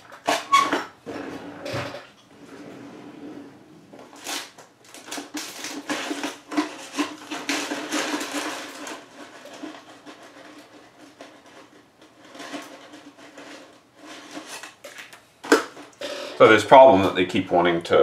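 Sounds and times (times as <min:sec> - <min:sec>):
small objects clattering on workbench: 0:04.0 - 0:17.2.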